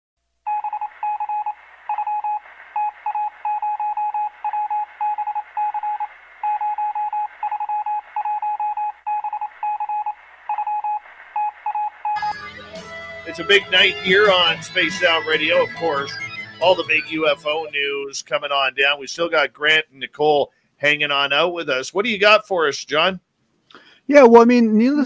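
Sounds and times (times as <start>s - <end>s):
rapid electronic beeping: 0.5s - 12.4s, 13.4s - 18.0s.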